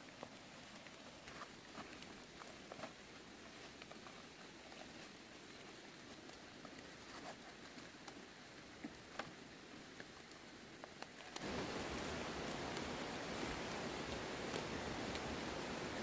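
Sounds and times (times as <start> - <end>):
large leaves rustling: 0.0 - 16.0
steady rushing hiss: 0.0 - 16.0
stems snapping: 10.3 - 15.3.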